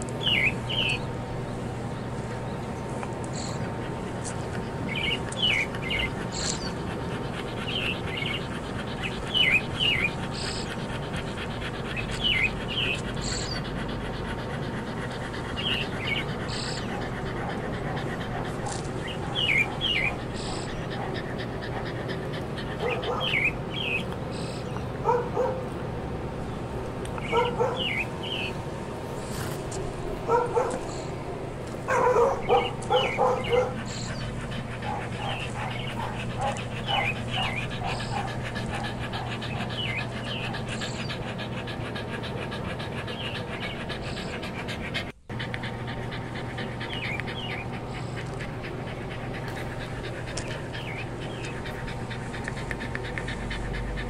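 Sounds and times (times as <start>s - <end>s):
dog panting: 0.0s - 54.0s
dog whimpering: 4.9s - 25.6s, 31.9s - 54.0s.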